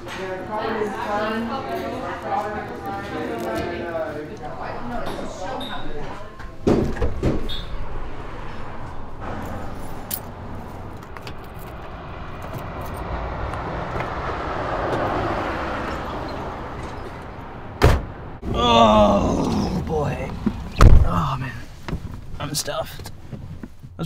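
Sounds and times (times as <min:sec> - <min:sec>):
road traffic rumble: 0:00.0 - 0:24.0
car driving past: 0:04.0 - 0:20.9.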